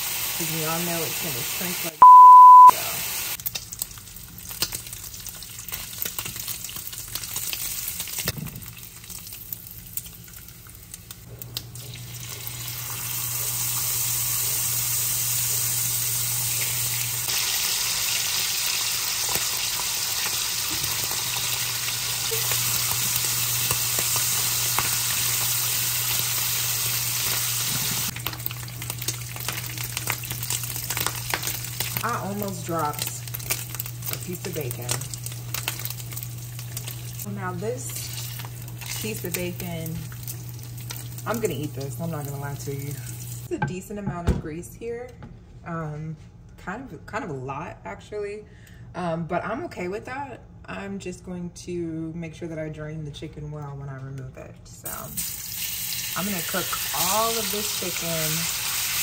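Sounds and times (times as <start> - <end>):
bacon sizzling in a pan: 0.0 - 2.0, 2.9 - 43.5, 55.0 - 59.0.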